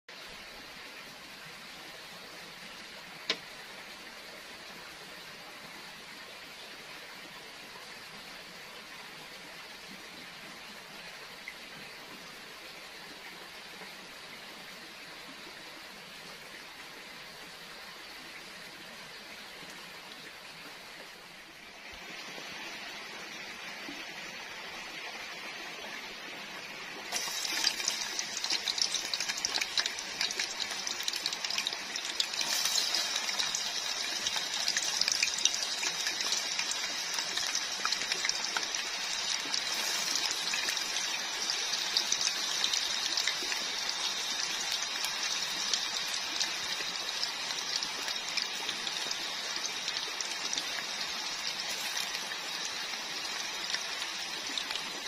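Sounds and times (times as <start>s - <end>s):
faint hiss: 0.1s - 55.0s
potatoes deep-frying in oil: 27.1s - 55.0s.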